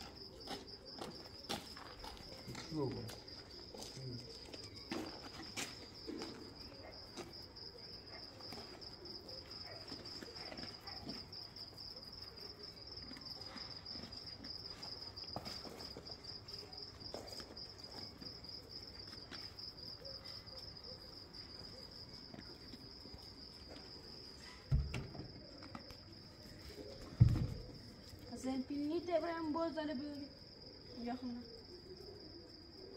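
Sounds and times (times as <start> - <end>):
crickets chirring: 0.0 - 32.9
dull thump: 24.7 - 25.3, 27.2 - 27.7.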